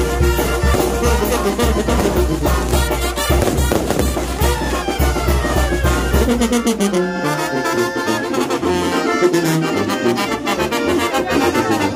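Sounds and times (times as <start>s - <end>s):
fireworks crackling and popping: 0.0s - 6.4s
brass band playing: 0.0s - 11.9s.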